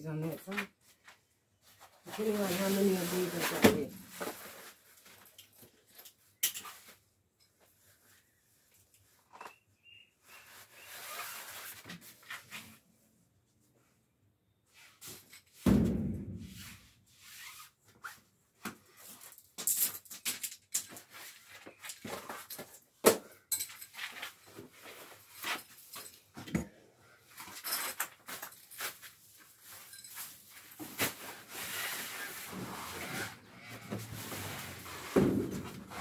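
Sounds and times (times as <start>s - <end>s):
heavy thump: 15.7s - 16.6s.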